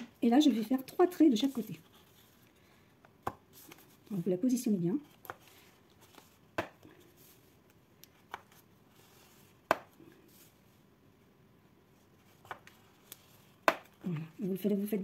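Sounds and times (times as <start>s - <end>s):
scoring tool tapping card: 13.6s - 14.0s.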